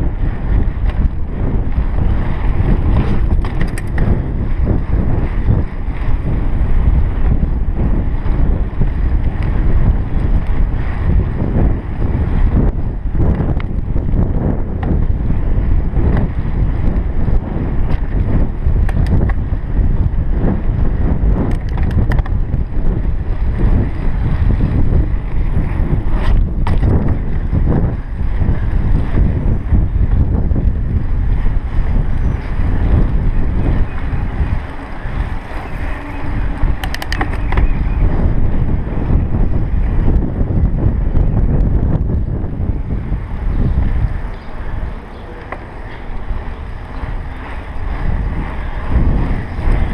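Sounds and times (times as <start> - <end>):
bike clicks and rattles: 0.0 - 49.9
wind buffeting microphone: 0.0 - 49.9
tyre rumble on pavement: 21.6 - 39.0.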